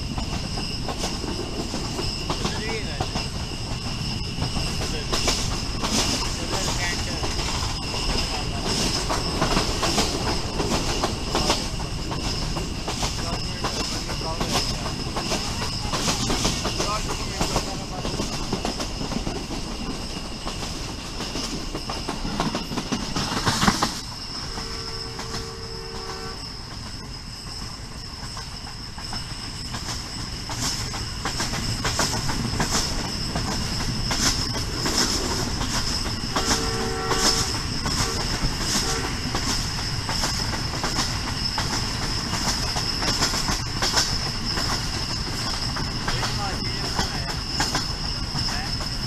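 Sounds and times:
train wheels clattering over rail joints: 0:00.0 - 0:49.0
two-tone train horn: 0:24.4 - 0:26.5, 0:36.3 - 0:39.4.

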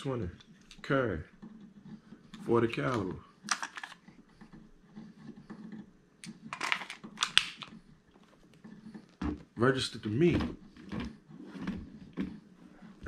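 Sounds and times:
pistol handling clicks and rustles: 0:02.9 - 0:04.1.

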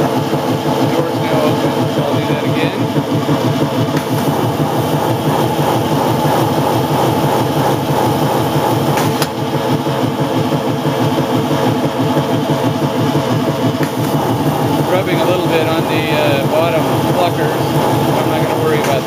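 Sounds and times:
plucker plate whirring: 0:00.0 - 0:19.0
water spraying into tub: 0:01.2 - 0:10.3, 0:13.4 - 0:19.0.

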